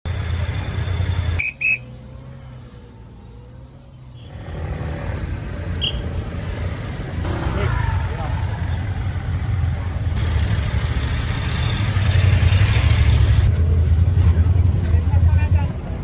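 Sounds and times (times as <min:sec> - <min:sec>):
street traffic: 0:00.0 - 0:16.0
motorcycles idling: 0:00.1 - 0:03.8, 0:05.2 - 0:15.6
short high whistle blasts: 0:01.4 - 0:01.9.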